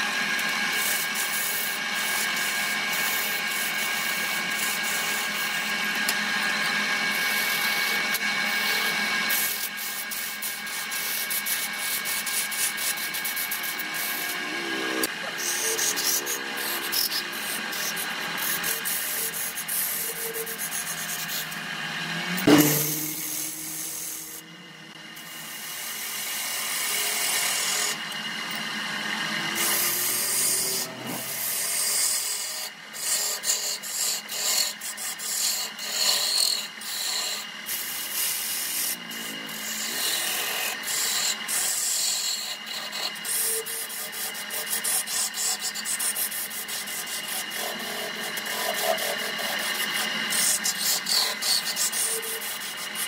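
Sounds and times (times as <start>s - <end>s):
wood lathe tool scraping wood: 0.0s - 53.0s.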